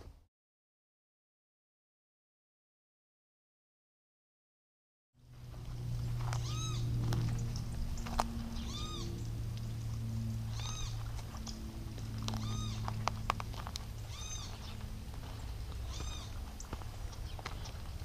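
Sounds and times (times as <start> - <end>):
steady low hum: 5.2 - 18.0
animal mewing call: 6.3 - 7.0, 8.5 - 9.2, 10.5 - 11.5, 12.1 - 13.1, 14.0 - 14.9, 15.8 - 16.5.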